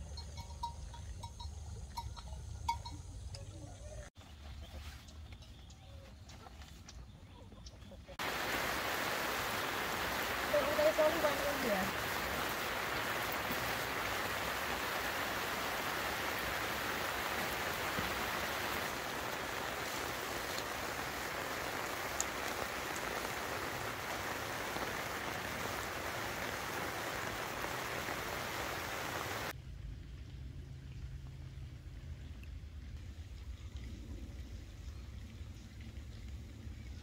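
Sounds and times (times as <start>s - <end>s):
heavy rain on grass and trees: 8.2s - 29.6s.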